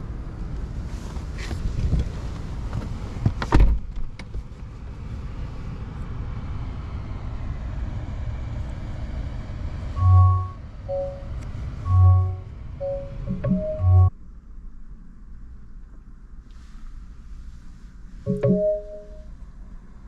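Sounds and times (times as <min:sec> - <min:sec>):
low cabin hum: 0:09.8 - 0:20.0.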